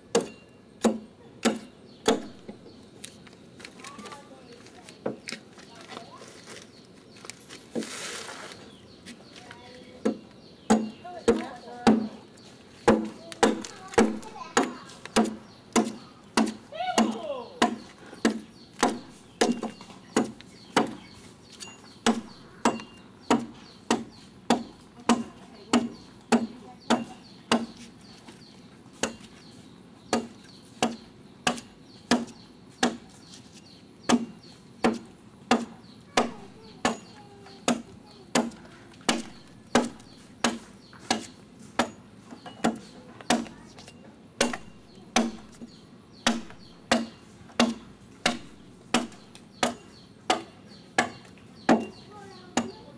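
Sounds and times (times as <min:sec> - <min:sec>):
adze chopping wood: 0:00.1 - 0:02.6, 0:10.0 - 0:12.2, 0:12.8 - 0:21.2, 0:22.0 - 0:27.9, 0:29.0 - 0:29.4, 0:30.1 - 0:33.1, 0:34.0 - 0:43.6, 0:44.4 - 0:52.8.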